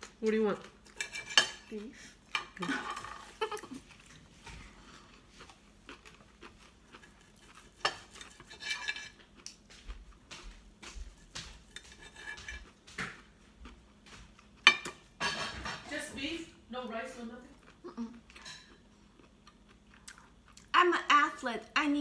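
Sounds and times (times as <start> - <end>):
cutlery clinking on a plate: 11.4 - 13.2, 14.6 - 15.9, 18.4 - 18.8.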